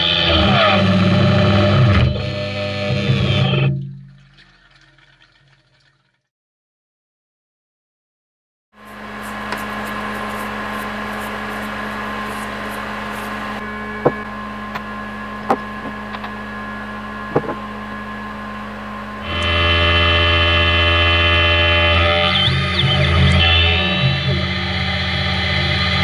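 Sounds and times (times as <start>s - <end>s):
machine whining tones: 0.0s - 3.8s, 8.8s - 26.0s
milling machine humming: 8.8s - 26.0s.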